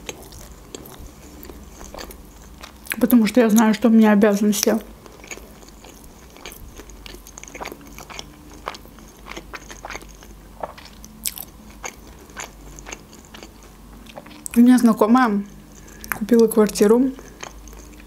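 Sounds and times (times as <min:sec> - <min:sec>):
chewing mouth clicks and smacks: 0:17.4 - 0:18.0.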